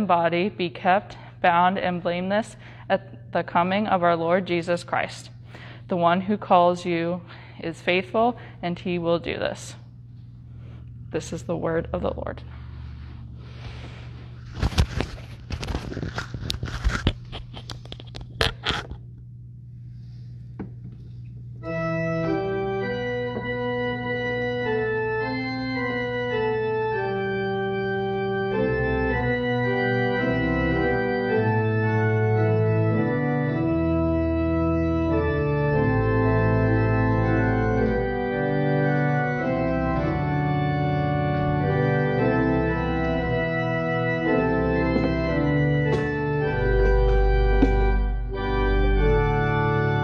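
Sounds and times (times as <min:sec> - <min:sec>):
organ playing sustained chords: 0:00.0 - 0:50.0
sharp knocks: 0:44.9 - 0:48.1.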